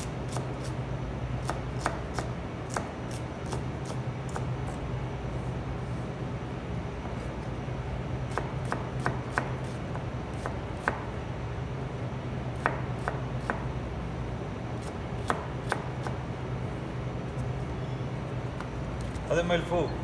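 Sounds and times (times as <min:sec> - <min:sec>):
steady low hum: 0:00.0 - 0:20.0
knife chopping on cutting board: 0:08.3 - 0:11.1, 0:14.8 - 0:16.2.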